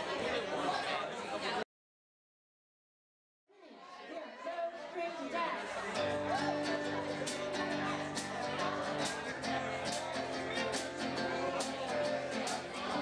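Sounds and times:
strummed acoustic guitar: 5.9 - 13.0
drum kit beat: 6.4 - 13.0.

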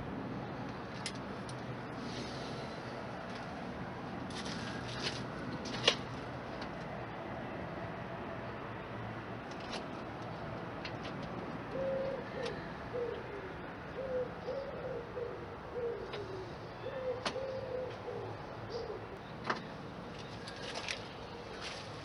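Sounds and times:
dove cooing: 11.7 - 19.2.

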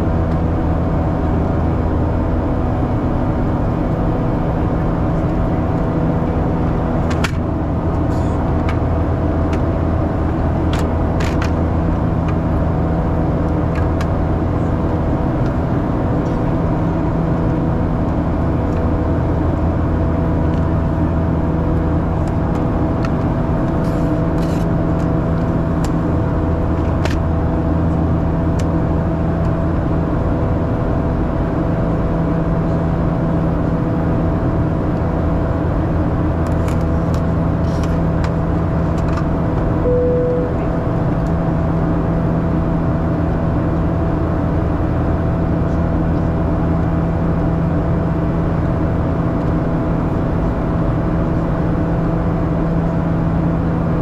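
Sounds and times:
airplane cabin drone: 0.0 - 54.0
short tone: 39.8 - 40.9.

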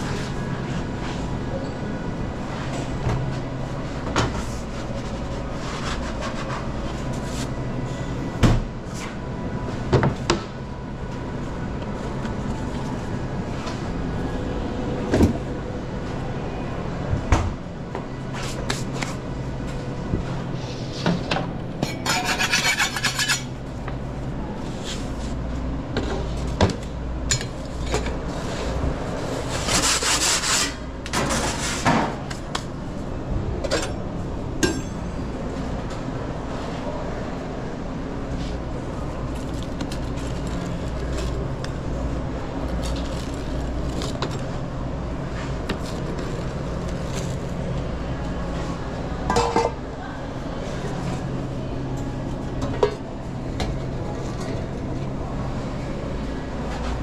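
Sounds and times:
steady low hum: 0.0 - 57.0
rasping scraping: 22.0 - 23.5.

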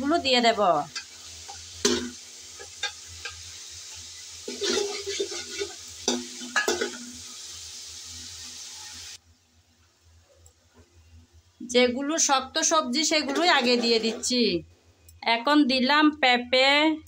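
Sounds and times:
steady sizzle: 0.0 - 17.0
metal spatula scraping pot: 4.5 - 7.1, 13.1 - 14.4.

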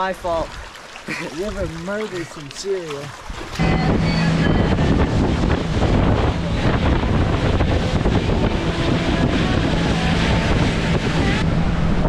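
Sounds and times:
wind buffeting microphone: 3.0 - 12.0
low hum: 3.6 - 12.0.

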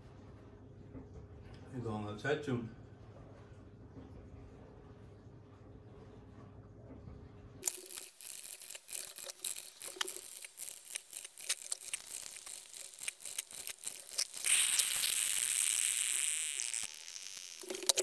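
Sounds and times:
coffee maker clicking and sputtering: 7.6 - 18.0
coffee maker steady hiss: 7.6 - 18.0.

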